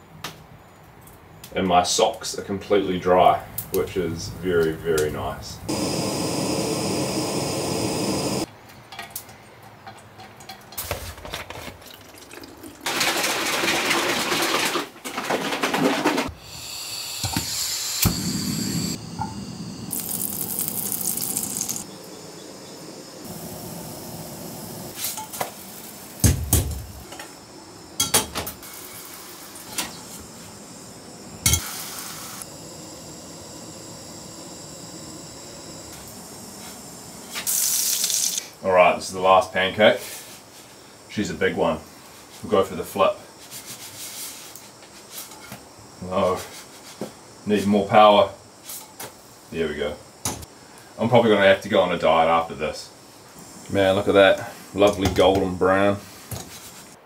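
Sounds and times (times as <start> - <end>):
gas burner hiss: 2.7 - 8.5, 16.3 - 57.0
batter sizzling in frying pan: 16.4 - 38.6.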